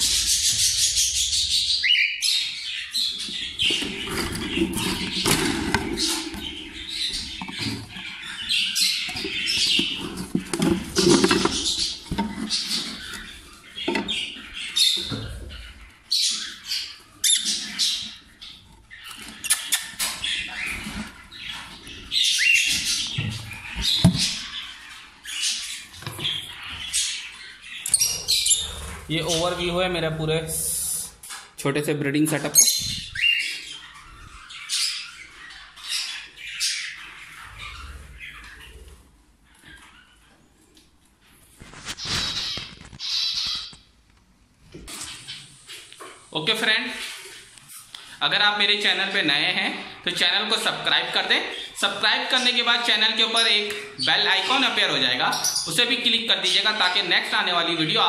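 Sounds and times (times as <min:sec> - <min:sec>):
parrots chirping and squawking: 0:00.0 - 0:31.6, 0:32.4 - 0:44.0, 0:44.8 - 0:58.0
knocks and rattles: 0:09.1 - 0:12.9.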